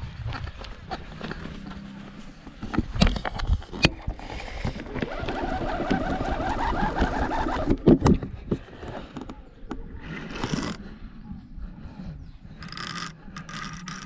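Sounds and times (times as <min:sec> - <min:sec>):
fishing reel gears whirring: 0:05.1 - 0:07.8, 0:10.4 - 0:10.8, 0:12.6 - 0:14.0.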